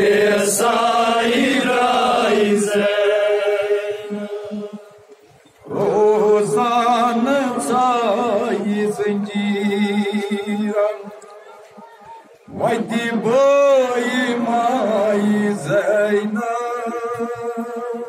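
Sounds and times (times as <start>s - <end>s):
man chanting into a microphone: 5.7s - 11.2s, 12.5s - 18.0s.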